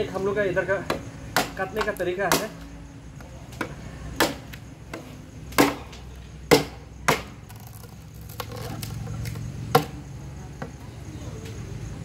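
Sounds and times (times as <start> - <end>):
machete chopping bamboo: 0.8 - 10.0.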